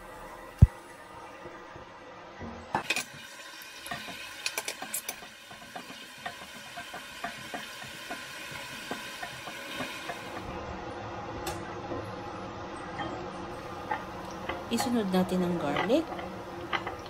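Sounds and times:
onions sizzling in oil: 0:02.8 - 0:10.9
spatula scraping and tapping pot: 0:03.9 - 0:10.3.

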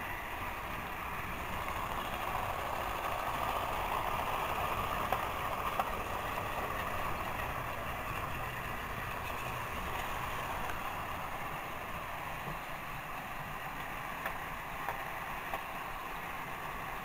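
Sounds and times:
toy train motors whirring: 0:00.0 - 0:12.5.

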